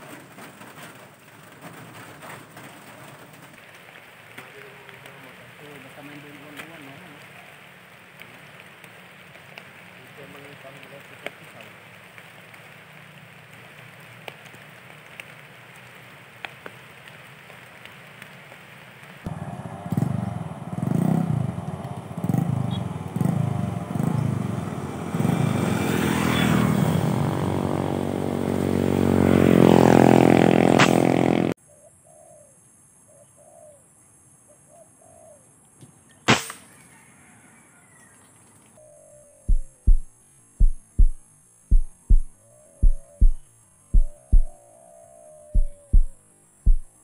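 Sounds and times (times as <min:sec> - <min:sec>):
rifle shot: 0:30.8 - 0:31.0, 0:36.3 - 0:36.7
bird chirps: 0:38.8 - 0:47.0
slow thumps: 0:39.5 - 0:44.6, 0:45.6 - 0:47.0.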